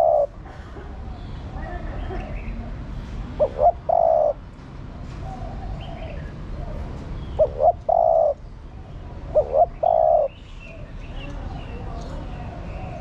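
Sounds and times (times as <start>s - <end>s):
dove cooing: 0.0s - 0.4s, 3.4s - 4.4s, 5.2s - 10.9s.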